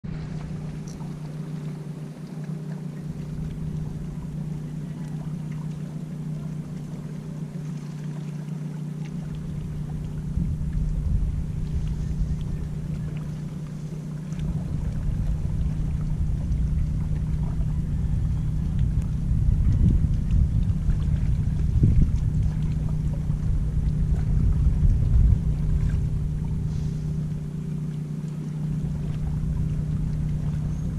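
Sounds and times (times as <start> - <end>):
engine humming: 0.0 - 30.9
wind buffeting microphone: 9.2 - 30.9.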